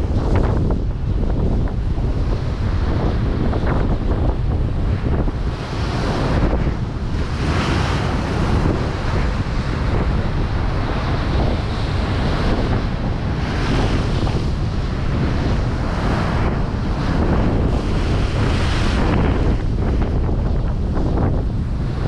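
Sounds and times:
gale wind buffeting microphone: 0:00.0 - 0:22.0
waves breaking and rushing: 0:00.0 - 0:22.0.

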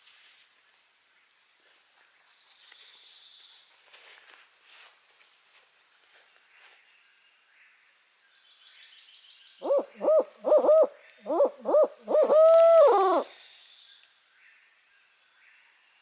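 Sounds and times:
owl hooting: 0:09.6 - 0:13.3.

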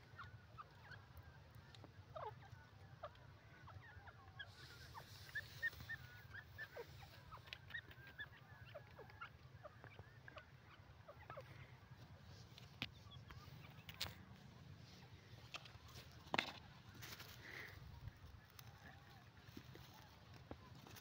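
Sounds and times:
francolin calls: 0:00.0 - 0:12.0.

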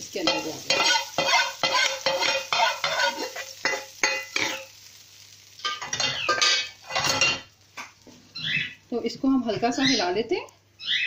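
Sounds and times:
hot oil sizzling: 0:00.0 - 0:11.0
parrots squawking: 0:00.7 - 0:03.4, 0:08.4 - 0:08.8, 0:10.8 - 0:11.0.

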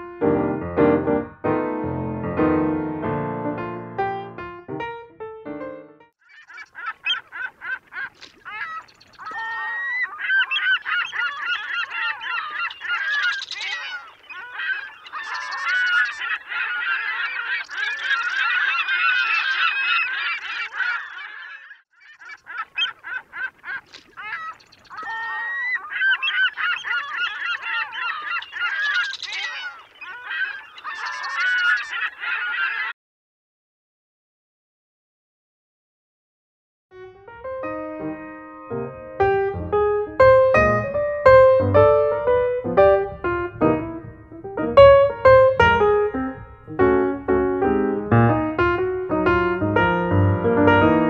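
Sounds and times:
waterbirds calling in a colony: 0:06.2 - 0:33.0.

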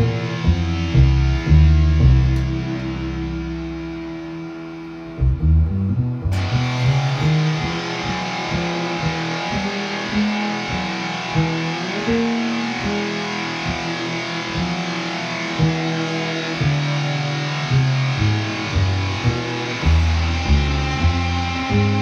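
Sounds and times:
bass guitar plucked notes: 0:00.0 - 0:22.0
dense noisy guitar layer: 0:00.0 - 0:22.0
electric guitar playing: 0:00.0 - 0:22.0.

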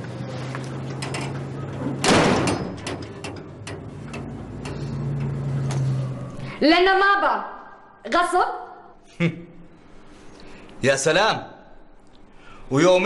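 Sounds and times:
door shutting with a bang: 0:01.8 - 0:03.9
small clicks and knocks: 0:02.5 - 0:05.8.

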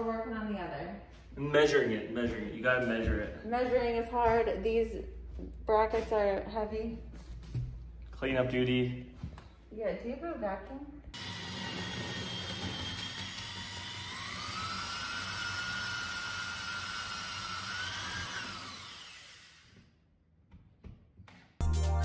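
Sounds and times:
cordless drill motor whine: 0:11.2 - 0:19.8
music: 0:21.6 - 0:22.0.

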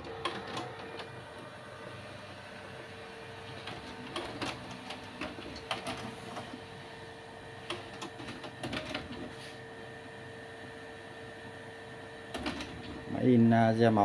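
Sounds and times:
printer mechanism clicking and clattering: 0:00.0 - 0:01.2, 0:03.5 - 0:06.6, 0:07.6 - 0:09.3, 0:12.3 - 0:13.1
printer humming: 0:00.0 - 0:14.0.

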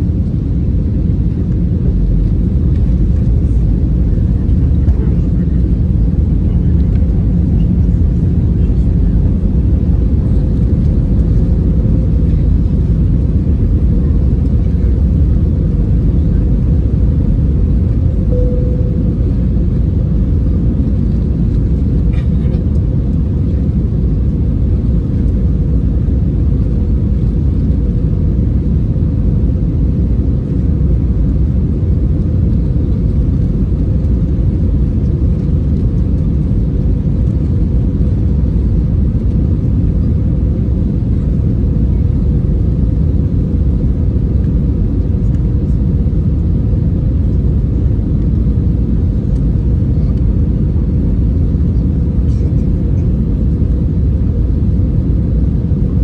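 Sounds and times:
faint steady hum: 0:00.0 - 0:26.9
airliner cabin rumble: 0:00.0 - 0:56.0.

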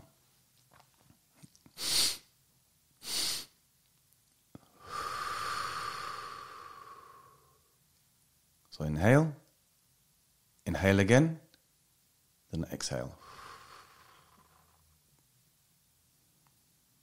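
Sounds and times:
sharp nasal inhales: 0:01.8 - 0:02.3, 0:03.0 - 0:03.6, 0:04.8 - 0:07.7, 0:13.2 - 0:14.8
long exhale through mouth: 0:03.0 - 0:03.5, 0:04.8 - 0:07.7, 0:13.2 - 0:14.8.

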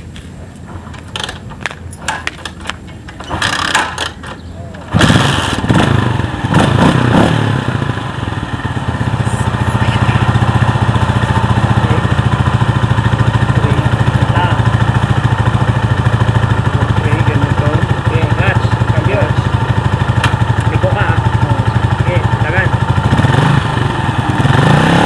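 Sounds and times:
motorcycle engine idling: 0:00.1 - 0:24.7.

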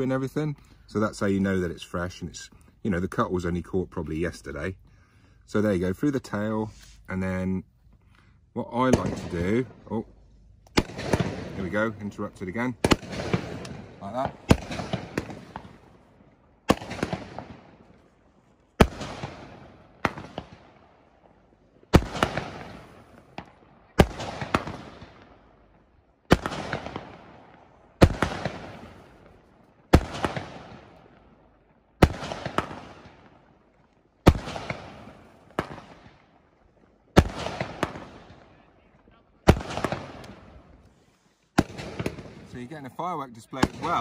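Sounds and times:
fireworks bursting: 0:08.8 - 0:09.8, 0:10.7 - 0:18.0, 0:18.8 - 0:20.8, 0:21.9 - 0:25.3, 0:26.3 - 0:31.2, 0:32.0 - 0:38.6, 0:39.5 - 0:44.0.

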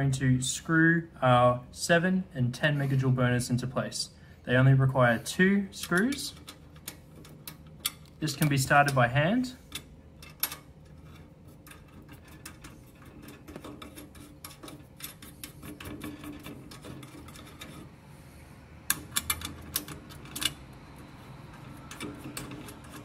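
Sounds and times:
sharp metal clicks: 0:05.8 - 0:09.1, 0:18.8 - 0:23.0
metal screws ticking and scraping: 0:09.7 - 0:17.9, 0:18.9 - 0:23.0.

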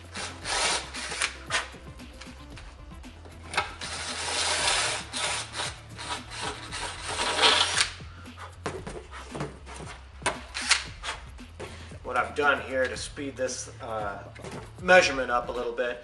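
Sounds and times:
cordless drill grinding fiberglass: 0:00.0 - 0:01.7, 0:03.5 - 0:08.0.

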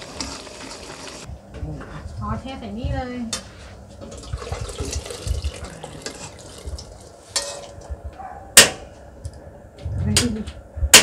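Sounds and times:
liquid pouring and splashing: 0:04.1 - 0:07.2.

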